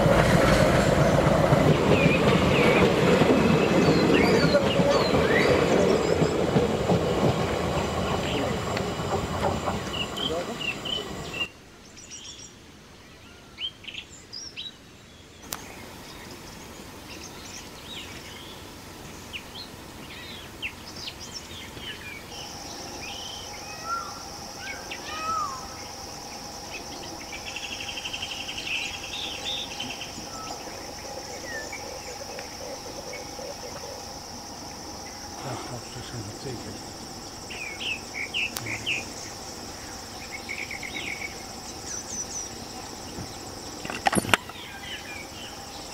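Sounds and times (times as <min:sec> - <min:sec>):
birds chirping and calling: 0:01.0 - 0:11.5, 0:19.4 - 0:45.9
high-pitched insect drone: 0:21.5 - 0:45.9
pulsing insect buzz: 0:22.1 - 0:44.0.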